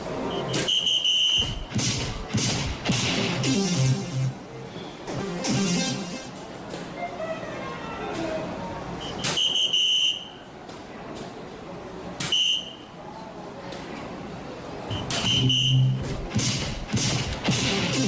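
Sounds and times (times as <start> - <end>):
electronic beep tone: 14.9 - 16.1.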